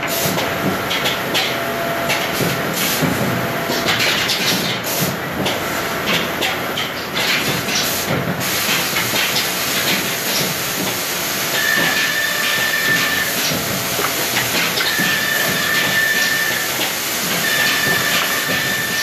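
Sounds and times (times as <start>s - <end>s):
woodworking machinery hissing: 7.6s - 19.0s.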